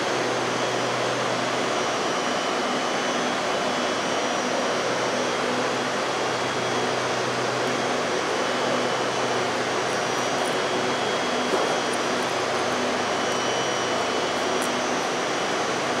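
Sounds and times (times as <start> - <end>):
train air-conditioning whir: 4.4 - 16.0.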